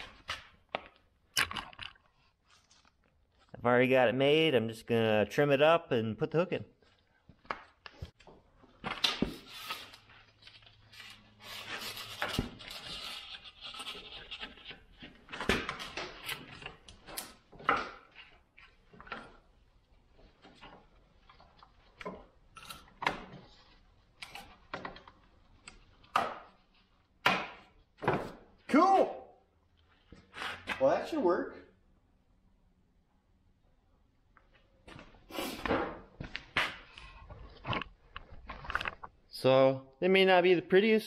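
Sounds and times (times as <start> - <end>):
scraping and rubbing metal: 10.8 - 15.3.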